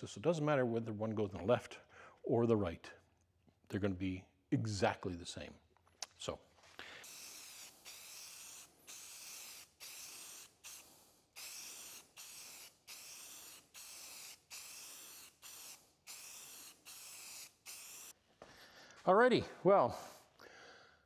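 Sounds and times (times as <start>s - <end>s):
aerosol spray can hissing: 7.0s - 18.2s.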